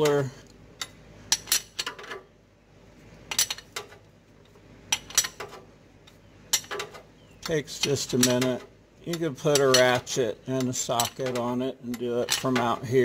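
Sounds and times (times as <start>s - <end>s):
wrench clicking on a nut: 10.6s - 12.7s.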